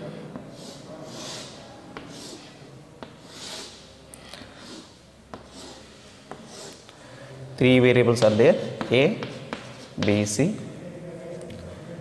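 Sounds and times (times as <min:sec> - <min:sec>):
chalk scraping on blackboard: 0:00.5 - 0:06.9, 0:08.2 - 0:10.3
chalk tapping on board: 0:05.3 - 0:06.8, 0:08.2 - 0:10.3.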